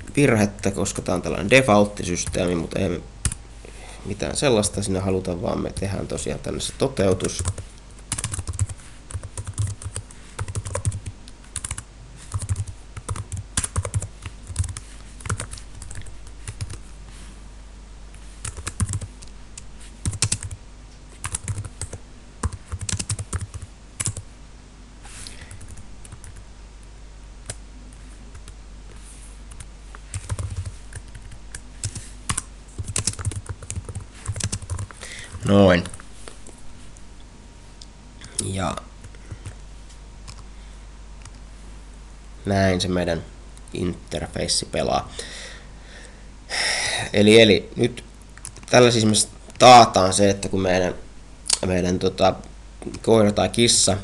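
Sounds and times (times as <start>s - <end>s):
typing on computer keyboard: 7.2s - 16.8s, 18.4s - 19.1s, 20.0s - 20.6s, 21.2s - 24.2s, 30.1s - 34.9s.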